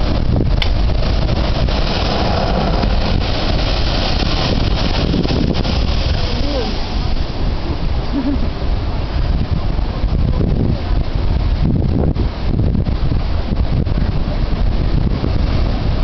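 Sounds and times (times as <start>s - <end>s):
blowhole blasting water spray: 0.0s - 11.5s
surf rushing: 0.0s - 16.0s
wind buffeting microphone: 0.0s - 16.0s.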